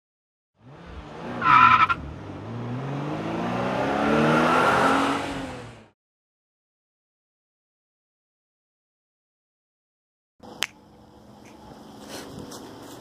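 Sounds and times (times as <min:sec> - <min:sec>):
car engine accelerating: 0:00.6 - 0:06.0
tyre squeal: 0:01.4 - 0:02.0.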